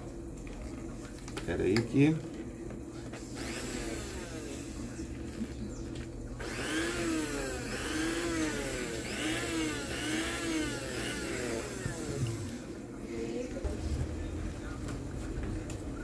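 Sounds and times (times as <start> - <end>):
hand mixer motor whining: 3.3 - 4.6, 6.4 - 12.8.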